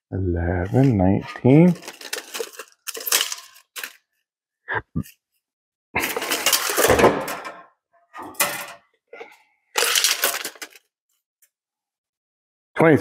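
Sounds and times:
metal tubing clattering and scraping: 0.7 - 4.0, 6.0 - 10.9.

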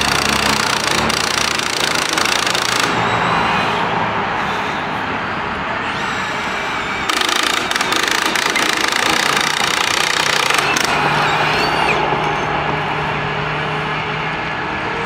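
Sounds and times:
harsh drilling noise: 0.0 - 3.8, 5.8 - 12.0.

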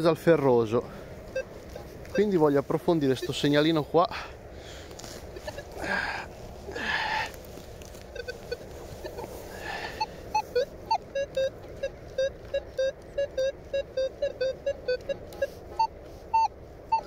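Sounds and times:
metal detector beeping: 1.3 - 2.4, 3.1 - 3.6, 5.4 - 5.8, 8.0 - 17.0.

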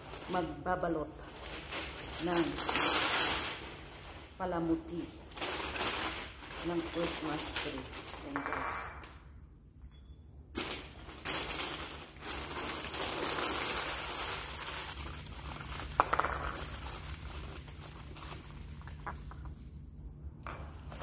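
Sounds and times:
paper crinkling and rustling: 1.2 - 4.4, 5.2 - 8.4, 10.6 - 19.8.

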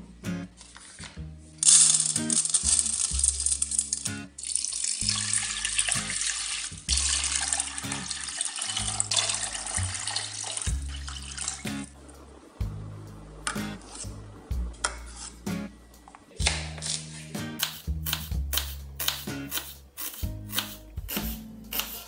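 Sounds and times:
water pouring into a pot: 1.6 - 11.7.

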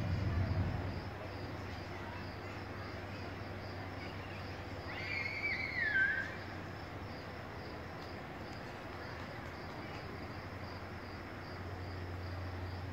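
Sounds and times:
low steady hum: 0.0 - 4.8.

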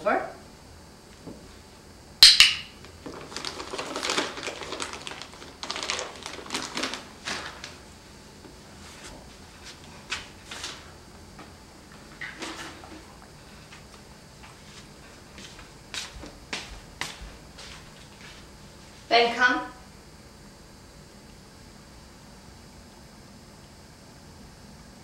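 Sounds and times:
sharp click: 2.2 - 2.7
treat pouch crinkling: 3.0 - 7.8.

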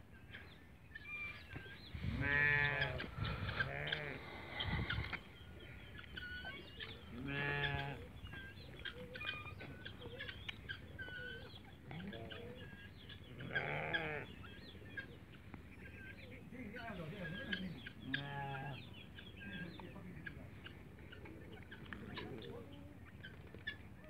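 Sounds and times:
livestock bleating: 2.0 - 4.2, 7.1 - 8.1, 13.4 - 14.3, 18.1 - 18.8.

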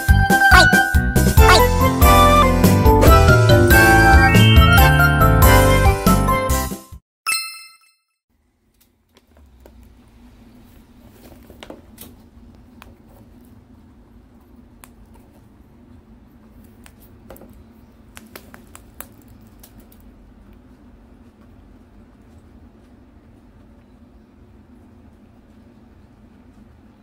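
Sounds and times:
guinea pig crunching food: 18.1 - 23.8.

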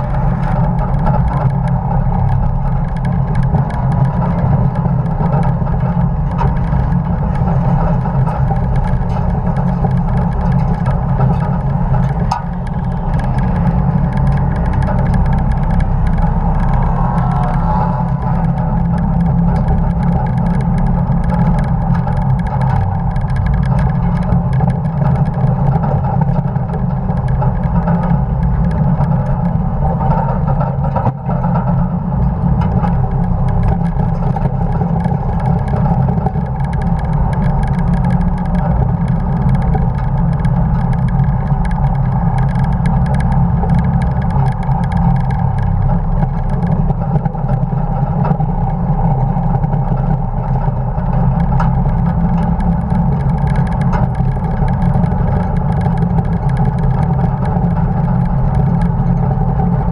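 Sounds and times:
loud truck engine: 0.0 - 24.6
road noise: 0.0 - 59.9.

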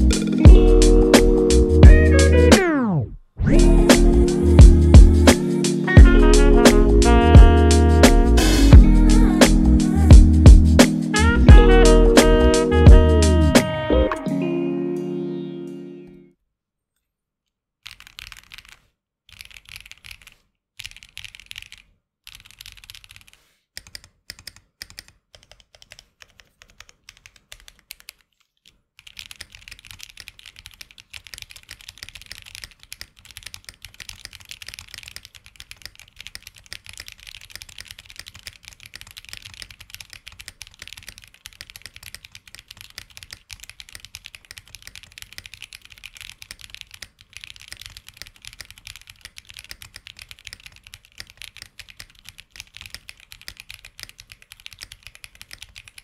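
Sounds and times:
mechanical keyboard typing: 17.8 - 56.0.

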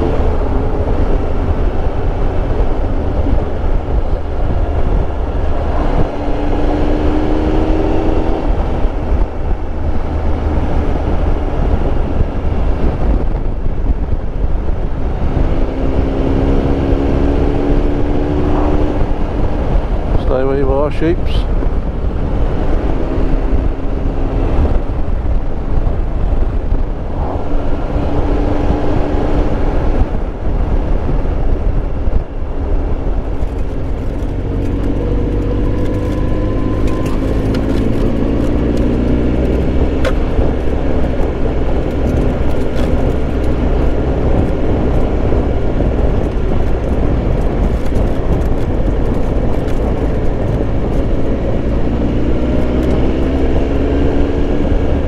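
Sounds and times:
wind rush: 0.0 - 55.0
motorcycle engine running: 32.4 - 55.0.

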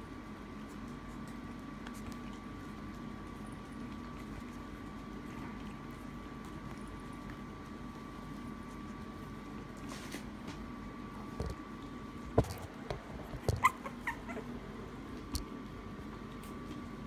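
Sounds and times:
puppies yipping: 13.4 - 14.6.

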